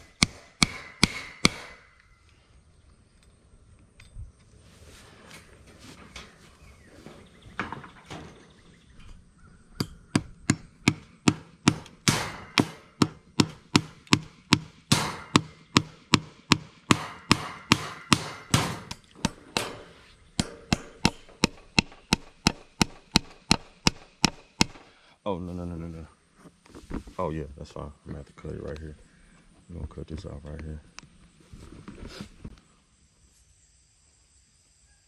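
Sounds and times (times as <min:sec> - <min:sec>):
hammer striking staples into wood: 0:00.0 - 0:01.8, 0:09.8 - 0:24.9.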